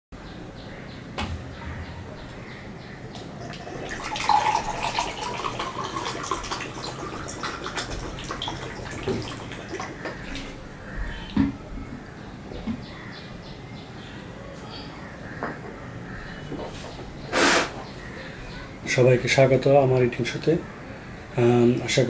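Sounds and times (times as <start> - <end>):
water pouring into glass: 3.4 - 10.5.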